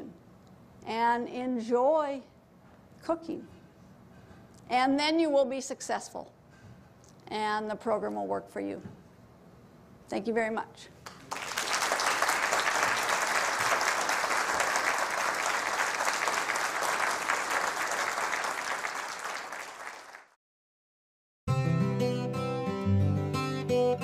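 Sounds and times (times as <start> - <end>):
audience applauding: 11.1 - 20.4
acoustic guitar music: 21.5 - 24.0.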